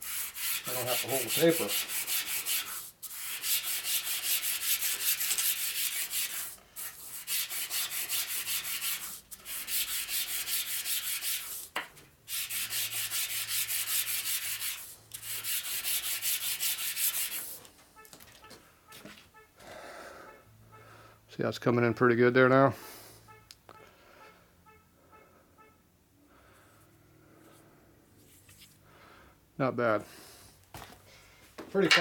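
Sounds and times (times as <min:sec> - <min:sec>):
metal part rubbing on sandpaper: 0:00.0 - 0:17.6.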